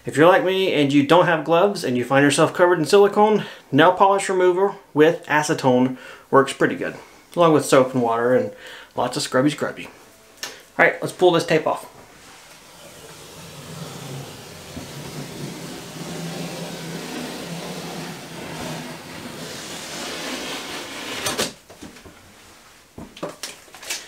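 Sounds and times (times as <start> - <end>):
tape ripping off: 12.5 - 21.6, 23.4 - 24.0.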